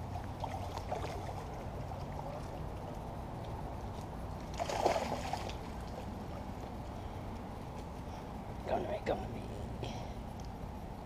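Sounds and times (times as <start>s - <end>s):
steady low rumble: 0.0s - 11.0s
water splash: 4.5s - 6.0s.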